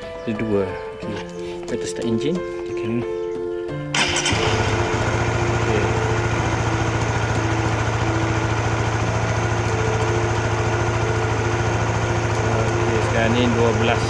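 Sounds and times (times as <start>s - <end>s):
motorcycle engine starting and idling: 3.9s - 14.0s.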